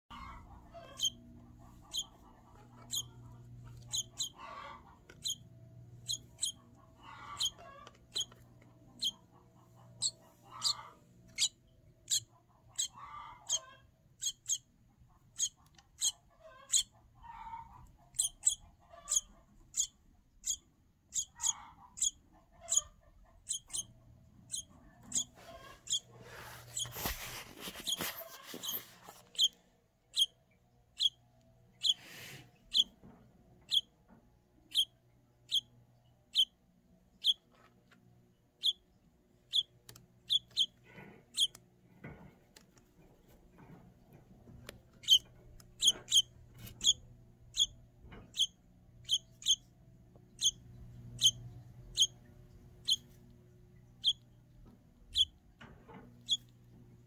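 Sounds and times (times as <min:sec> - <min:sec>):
baby bird peeping: 0:00.1 - 0:33.0, 0:33.6 - 0:34.0, 0:34.7 - 0:37.6, 0:38.6 - 0:41.6, 0:43.6 - 0:57.0.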